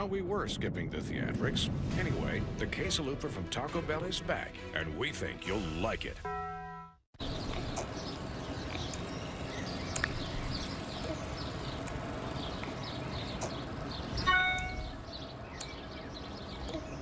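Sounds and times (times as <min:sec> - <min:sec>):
birds chirping: 0:07.2 - 0:17.0
high-pitched tone: 0:14.2 - 0:15.0.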